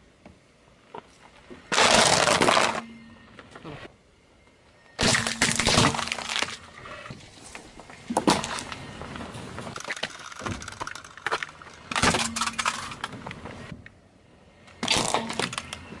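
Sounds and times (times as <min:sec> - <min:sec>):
plastic grinding and crackling: 0:01.3 - 0:02.9, 0:05.0 - 0:14.0, 0:14.7 - 0:16.0
plastic cracking under car tyre: 0:01.6 - 0:02.8, 0:05.0 - 0:06.7, 0:08.1 - 0:08.8, 0:09.7 - 0:13.8, 0:14.7 - 0:16.0.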